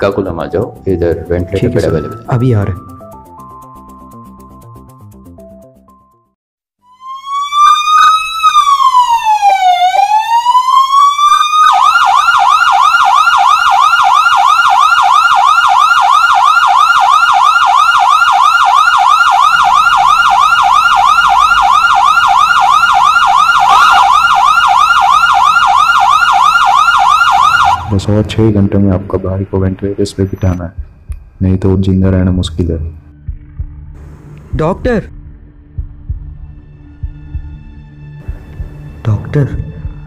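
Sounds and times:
ambulance siren wailing and yelping: 6.9s - 28.1s.

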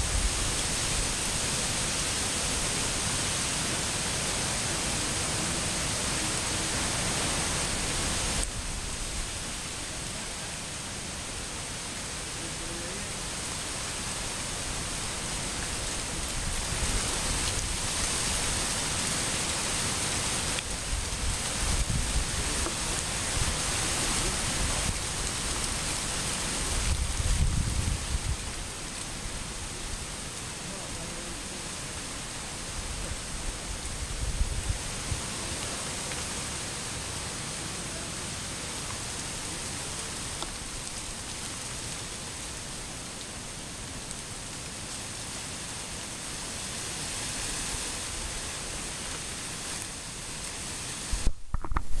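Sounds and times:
waterfall rushing: 0.0s - 26.7s.

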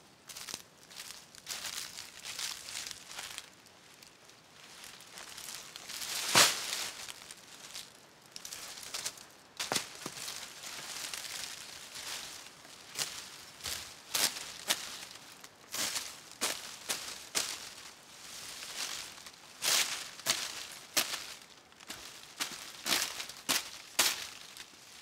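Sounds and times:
dry palm fronds rustling and crackling: 0.3s - 25.0s.

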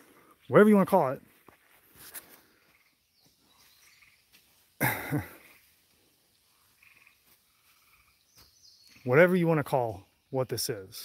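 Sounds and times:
person clearing throat: 4.8s - 5.4s.

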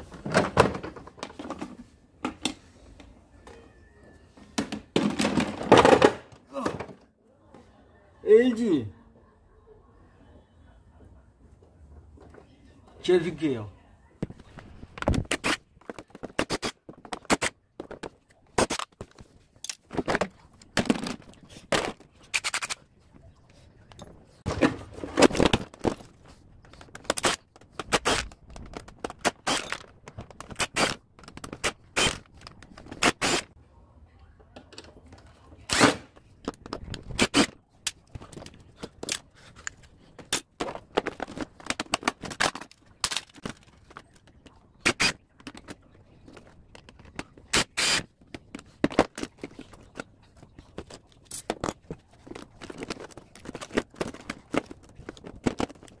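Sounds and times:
plastic parts knocking and clicking: 0.1s - 3.1s, 4.5s - 7.1s, 14.2s - 22.8s, 24.0s - 33.5s, 36.2s - 56.0s
plastic scraping: 14.2s - 23.1s, 35.6s - 56.0s.

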